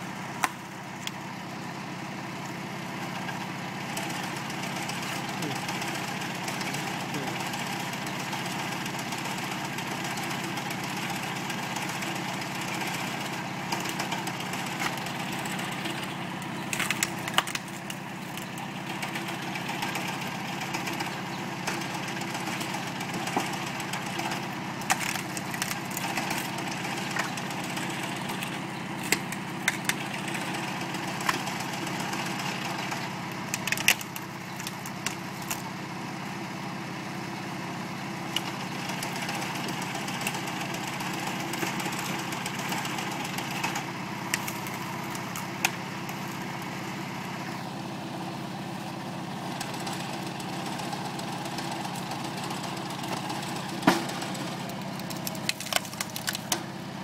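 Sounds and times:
firewood cracking and splintering: 0:00.0 - 0:57.0
tractor diesel engine running: 0:00.0 - 0:57.0.

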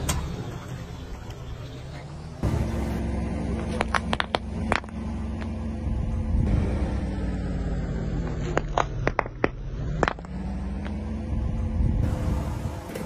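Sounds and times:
car engine humming: 0:00.0 - 0:13.0
plastic tubes popping under tyre: 0:03.6 - 0:05.6, 0:08.2 - 0:11.0.

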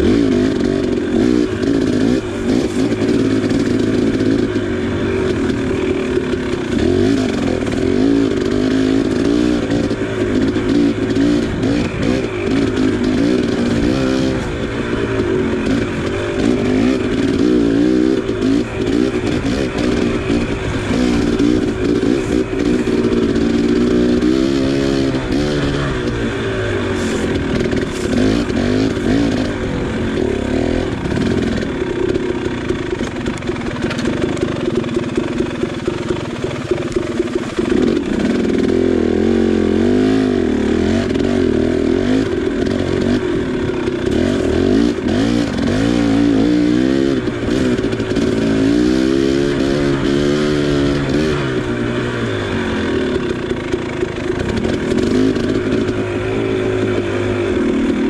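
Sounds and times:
dirt bike engine revving: 0:00.0 - 0:58.0
clicks and clatter: 0:31.1 - 0:38.8.

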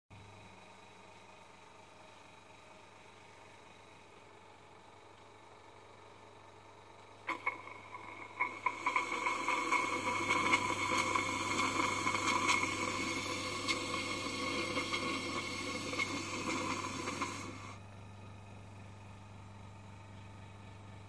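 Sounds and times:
steam valve hissing: 0:07.3 - 0:17.8.

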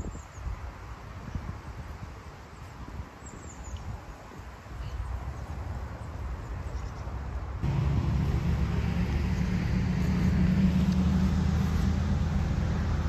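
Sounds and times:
outdoor background rumble: 0:06.8 - 0:13.0
low engine drone: 0:07.6 - 0:13.0.

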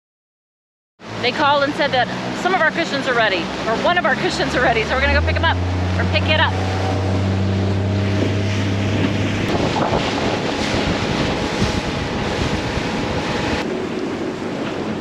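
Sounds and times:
boat motor humming: 0:01.0 - 0:15.0
water rushing and spraying: 0:01.0 - 0:15.0
wind buffeting the microphone: 0:03.3 - 0:15.0.

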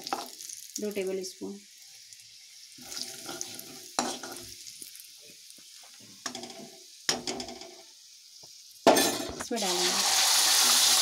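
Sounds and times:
spices sizzling in hot oil: 0:00.0 - 0:11.0
metal ladle scraping pan: 0:02.8 - 0:04.5.

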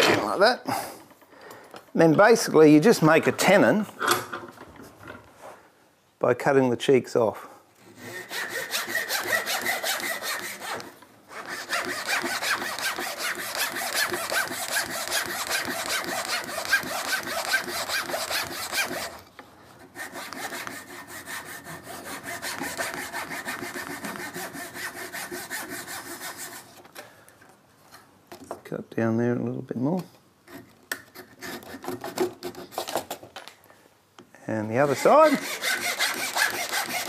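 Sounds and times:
pull saw cutting wood: 0:08.0 - 0:19.2, 0:34.8 - 0:37.0.

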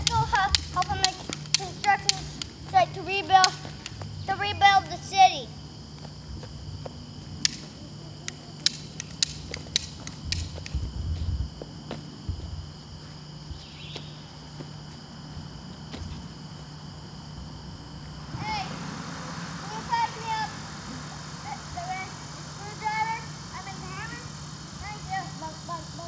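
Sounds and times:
insects droning: 0:00.0 - 0:26.0
sharp clicks and knocks: 0:08.3 - 0:10.8.

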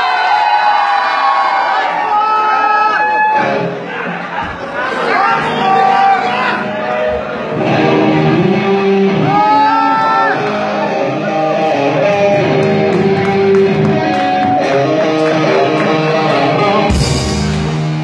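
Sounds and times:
electric guitar melody: 0:05.4 - 0:18.0
live band music: 0:07.4 - 0:18.0
drums and cymbals crash: 0:16.9 - 0:18.0.

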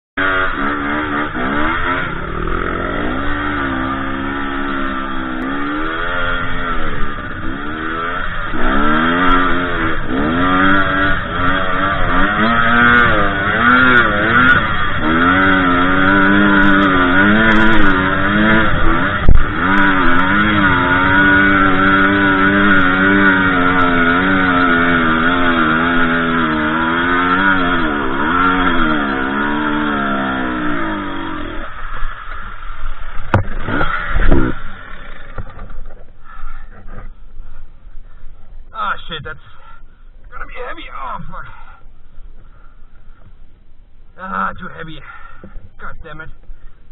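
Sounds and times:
dirt bike engine revving: 0:00.2 - 0:43.2
sharp thump: 0:33.2 - 0:34.6.

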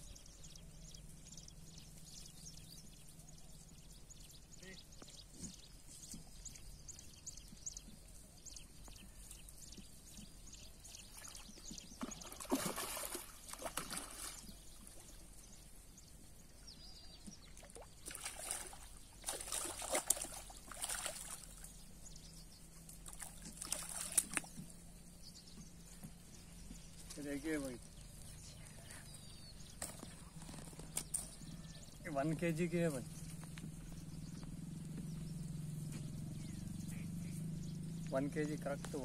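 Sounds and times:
fish splashing at water surface: 0:12.0 - 0:14.5, 0:17.6 - 0:21.6, 0:23.1 - 0:24.5.

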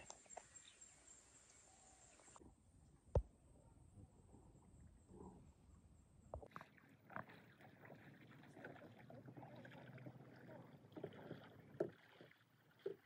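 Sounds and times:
canoe paddling on water: 0:06.3 - 0:13.0.

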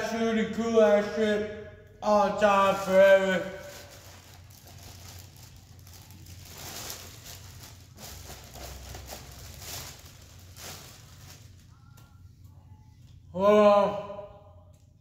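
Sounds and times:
paper bag rustling: 0:03.2 - 0:12.0.

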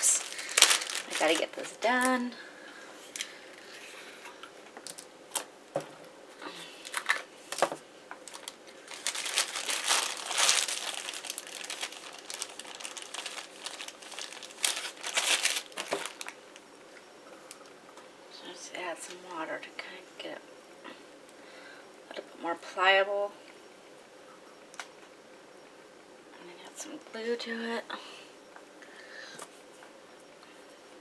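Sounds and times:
plastic bag crinkling: 0:00.0 - 0:02.4, 0:04.8 - 0:05.5, 0:06.8 - 0:16.6.

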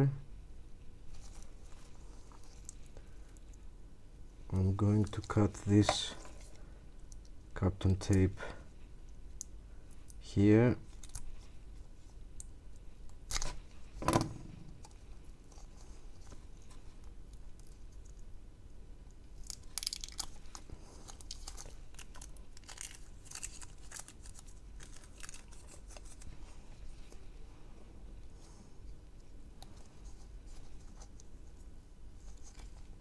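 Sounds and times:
tape crinkling and tearing: 0:10.9 - 0:11.5, 0:19.4 - 0:26.4.

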